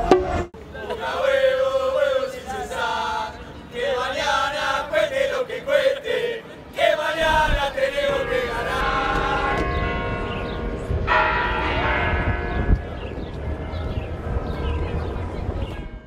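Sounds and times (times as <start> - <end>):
large tower bells ringing: 8.2 - 16.0.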